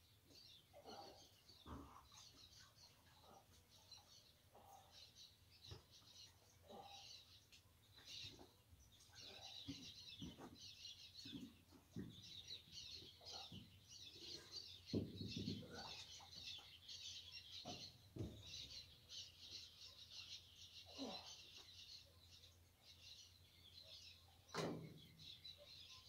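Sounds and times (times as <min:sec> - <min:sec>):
small birds chirping: 0:00.0 - 0:26.0
dull thumps and knocks: 0:14.9 - 0:15.9, 0:17.6 - 0:18.7.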